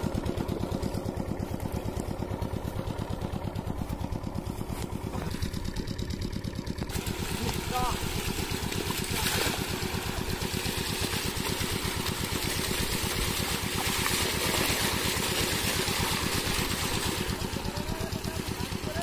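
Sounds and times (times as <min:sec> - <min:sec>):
diesel water pump engine running: 0:00.0 - 0:19.0
water gushing from pipe: 0:05.2 - 0:19.0.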